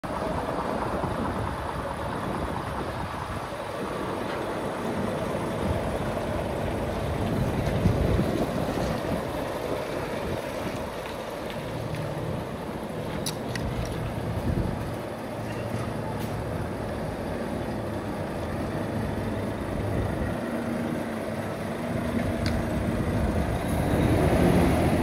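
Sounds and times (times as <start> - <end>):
low outdoor rumble: 0.0 - 25.0
wind buffeting microphone: 0.4 - 15.2.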